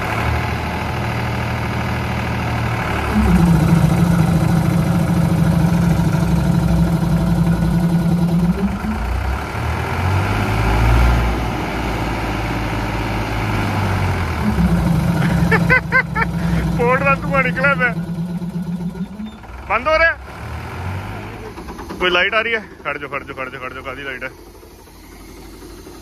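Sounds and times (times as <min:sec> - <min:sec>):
tractor engine revving: 0:00.0 - 0:26.0
air compressor running: 0:03.0 - 0:09.2, 0:14.4 - 0:19.4, 0:24.2 - 0:26.0.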